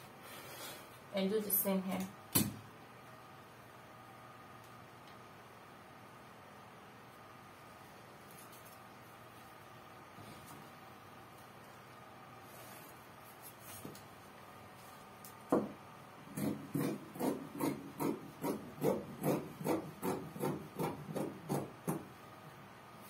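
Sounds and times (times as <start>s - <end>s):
tool rubbing over fabric: 16.4s - 21.7s.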